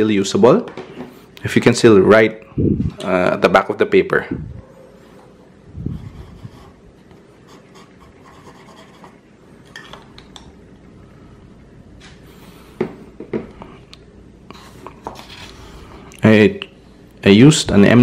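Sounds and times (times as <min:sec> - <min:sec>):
pen nib scratching paper: 0:05.9 - 0:09.2.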